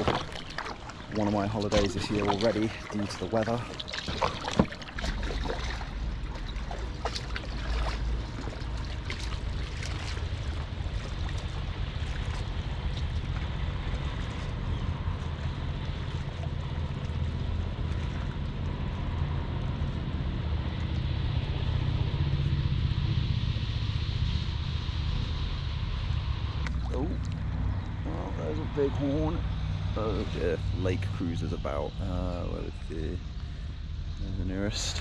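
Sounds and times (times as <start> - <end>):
water splashing and lapping: 0.0 - 22.5, 26.6 - 35.0
wind rumble on microphone: 0.0 - 35.0.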